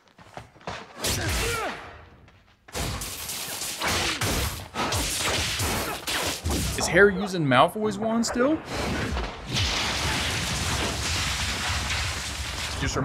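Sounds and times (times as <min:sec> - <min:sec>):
spell blasts whooshing and crashing: 0:08.6 - 0:13.0.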